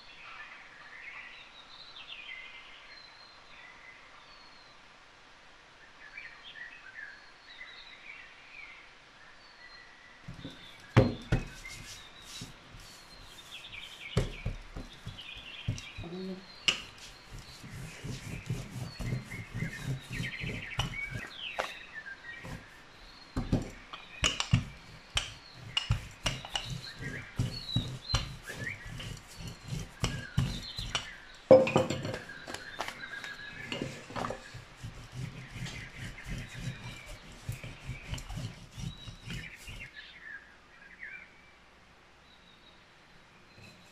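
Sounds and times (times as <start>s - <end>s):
rolling pin on dough: 10.3s - 21.8s, 22.4s - 39.9s
birds chirping: 10.3s - 41.3s.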